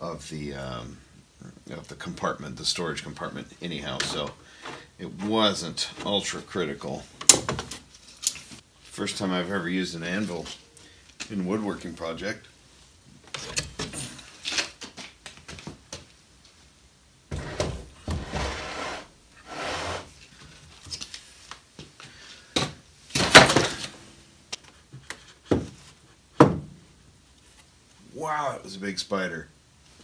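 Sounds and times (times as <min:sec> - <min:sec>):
wood scraping on wood: 0:17.3 - 0:20.2
knocks on workbench: 0:26.4 - 0:26.8.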